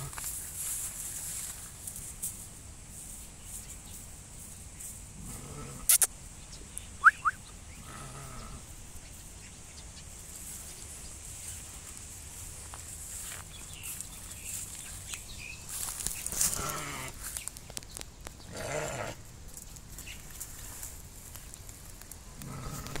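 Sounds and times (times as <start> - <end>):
ram bleating: 22.4 - 23.0.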